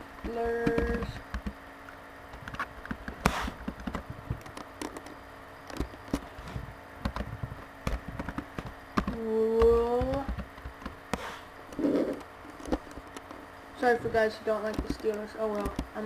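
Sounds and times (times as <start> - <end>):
keyboard keys clicking: 7.9 - 11.0, 14.5 - 16.0
person making drawn-out sound: 11.8 - 12.2.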